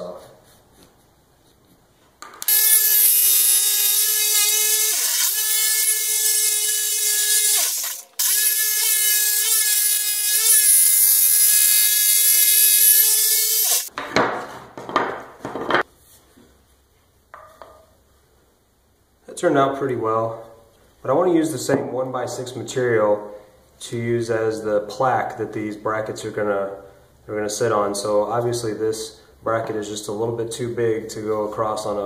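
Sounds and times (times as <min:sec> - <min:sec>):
jigsaw cutting wood: 0:02.4 - 0:13.9
wooden pieces knocking on workbench: 0:13.9 - 0:15.8.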